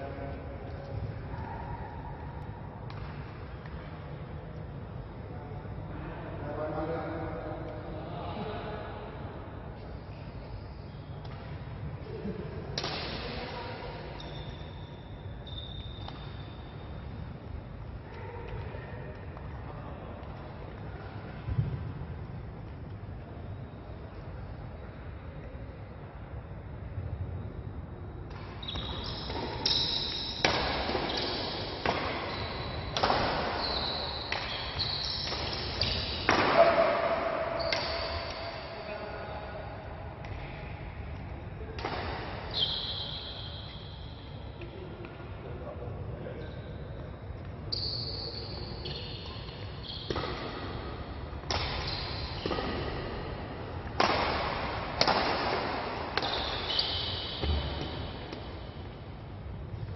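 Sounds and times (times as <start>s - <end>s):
badminton rackets hitting shuttlecock: 12.8s - 13.4s, 28.3s - 38.5s, 49.5s - 58.5s
shoes squeaking on court floor: 14.1s - 17.3s, 28.3s - 38.9s, 46.4s - 50.5s, 51.5s - 53.4s, 56.1s - 59.0s
badminton racket hitting shuttlecock: 29.3s - 33.6s, 51.4s - 53.3s, 53.9s - 56.7s.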